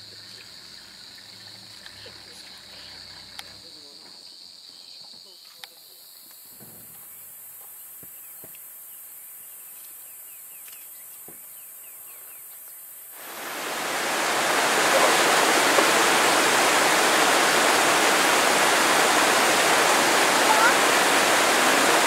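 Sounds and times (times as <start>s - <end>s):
river water rushing: 13.1s - 22.0s.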